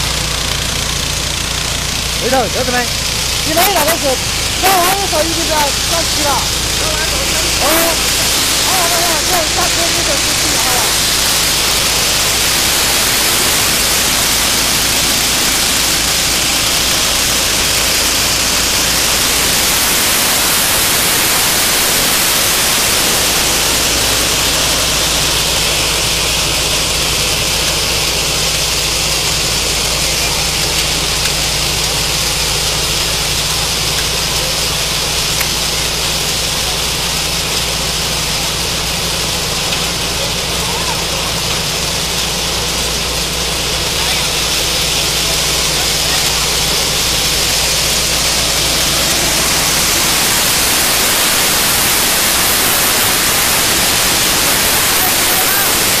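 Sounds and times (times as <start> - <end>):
combine harvester engine drone: 0.0 - 56.0
loud even hiss: 0.0 - 56.0.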